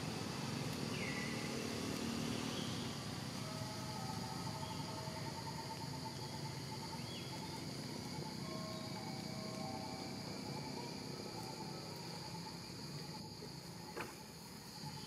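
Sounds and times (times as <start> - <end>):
background hiss: 0.0 - 15.0
high insect drone: 0.0 - 15.0
faint pulsing trill: 3.1 - 13.8.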